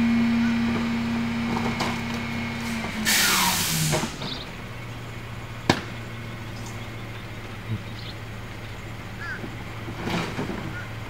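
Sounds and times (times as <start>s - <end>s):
garbage truck engine running: 0.0s - 11.0s
air hiss: 2.6s - 4.2s
trash cart knocking on truck: 5.6s - 6.2s.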